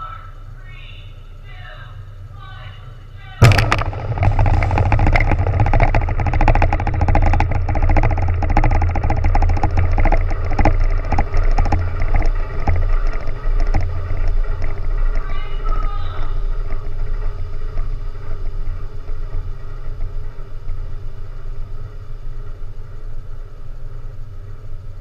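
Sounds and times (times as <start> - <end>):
steady low hum: 0.0 - 25.0
underwater explosion rumble: 3.4 - 15.2
dense crackling: 3.4 - 24.1.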